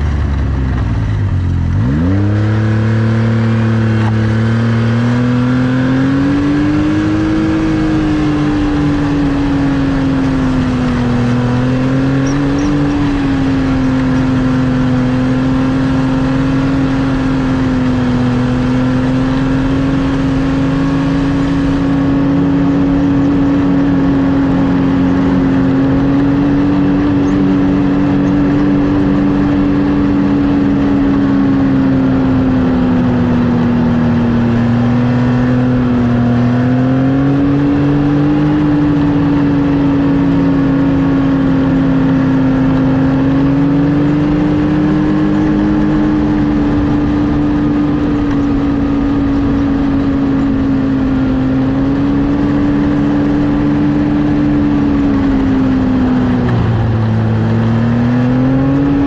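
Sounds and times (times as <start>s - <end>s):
snowmobile engine revving: 0.0s - 59.0s.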